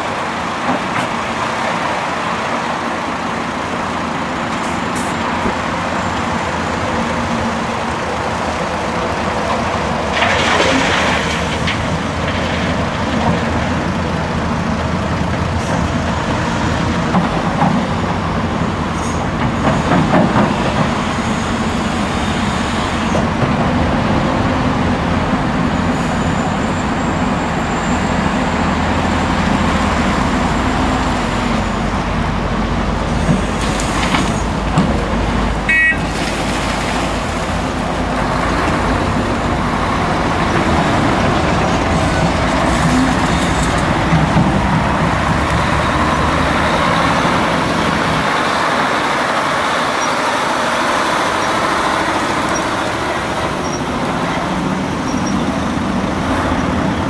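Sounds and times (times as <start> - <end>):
diesel engines running: 0.0 - 57.0
excavator loading earth into truck: 9.3 - 18.1, 33.0 - 57.0.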